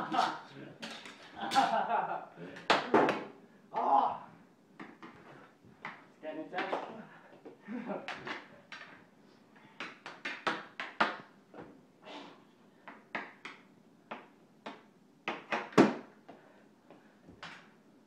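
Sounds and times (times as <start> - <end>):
hockey stick knocking puck on tiles: 4.8 - 6.0, 7.9 - 9.0, 9.8 - 11.7, 12.8 - 16.4.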